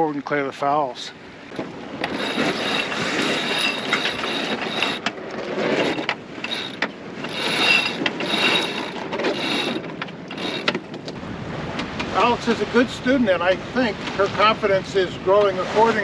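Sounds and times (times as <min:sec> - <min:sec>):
sailboat winch ratcheting: 0:01.5 - 0:11.2.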